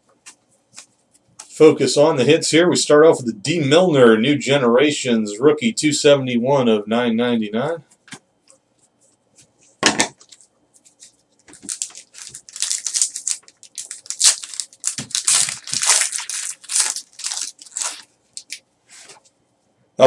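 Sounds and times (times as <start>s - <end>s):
card pack wrapper crinkling: 10.2s - 18.6s.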